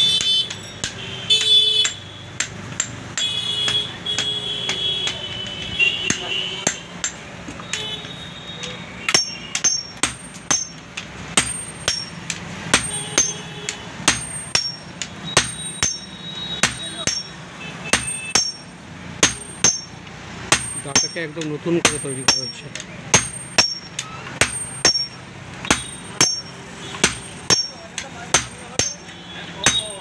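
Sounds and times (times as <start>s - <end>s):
hammer ringing on anvil: 9.0s - 10.8s, 11.4s - 30.0s.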